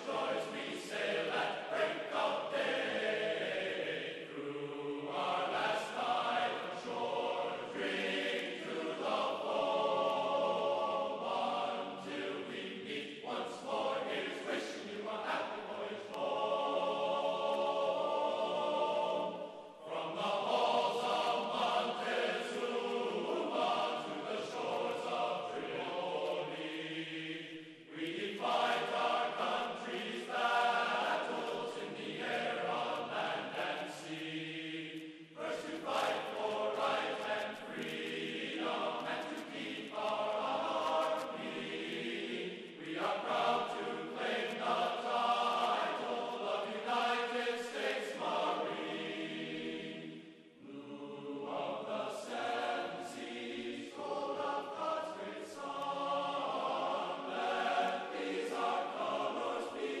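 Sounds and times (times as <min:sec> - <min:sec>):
choral chanting: 0:00.0 - 1:00.0.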